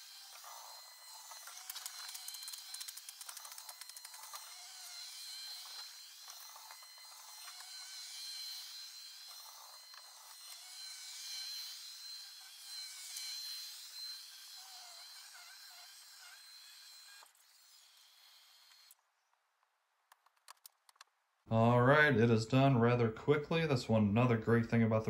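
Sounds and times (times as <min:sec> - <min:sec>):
robot vacuum whine: 0:00.0 - 0:19.0.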